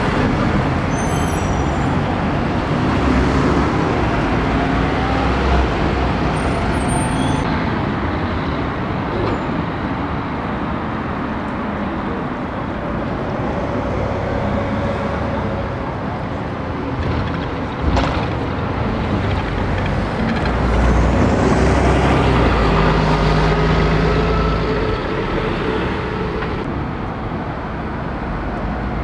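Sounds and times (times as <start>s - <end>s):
cars passing: 0.0s - 29.0s
brief high squeaks: 0.9s - 2.0s.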